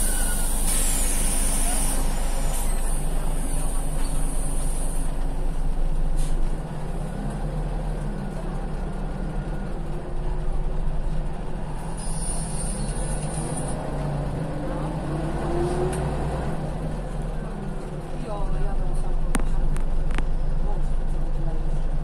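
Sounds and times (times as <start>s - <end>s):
diesel bus engine idling: 0.0s - 22.0s
compressed air hissing: 0.2s - 3.0s.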